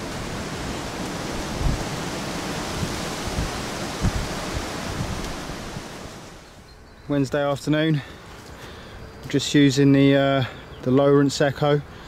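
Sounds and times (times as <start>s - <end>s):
wind buffeting microphone: 0.0s - 6.4s
wind hissing: 0.0s - 6.7s.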